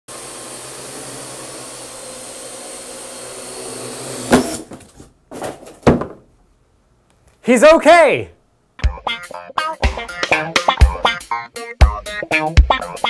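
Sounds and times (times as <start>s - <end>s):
loud thump: 5.4s - 6.3s.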